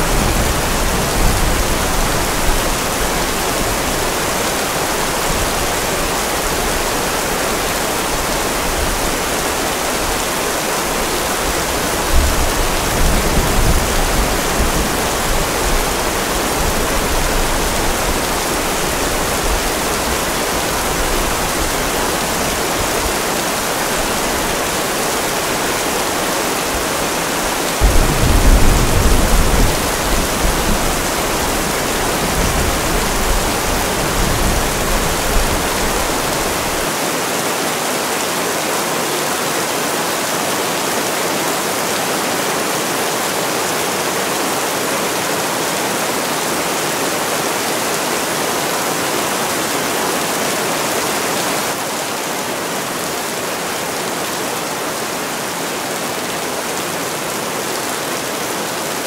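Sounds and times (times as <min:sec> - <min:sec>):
steady rain: 0:00.0 - 0:59.0
rolling thunder: 0:27.8 - 0:36.0.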